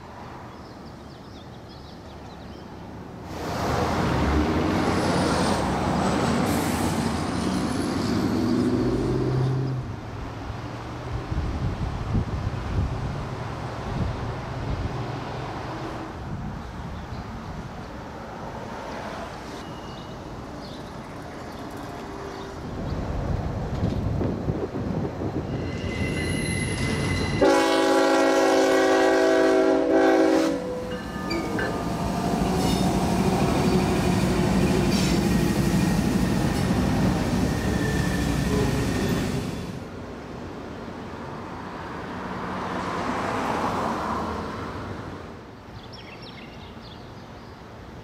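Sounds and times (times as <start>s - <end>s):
train horn blast: 25.9s - 31.4s.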